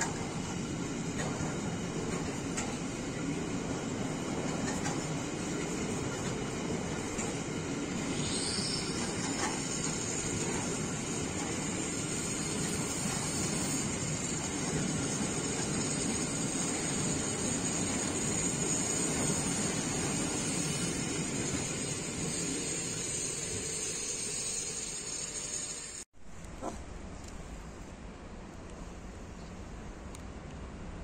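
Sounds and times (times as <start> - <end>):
freight train rumbling past: 0.0 - 26.0
high hiss: 8.0 - 26.0.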